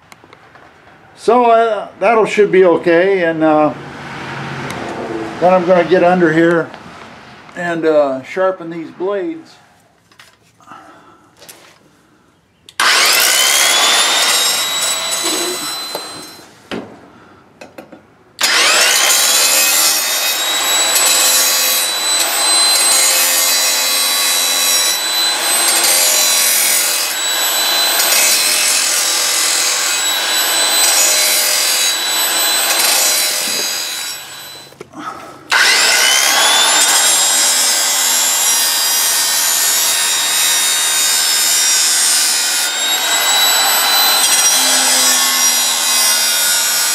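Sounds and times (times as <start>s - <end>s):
angle grinder grinding steel: 12.8s - 16.6s, 18.4s - 34.8s, 35.5s - 46.9s.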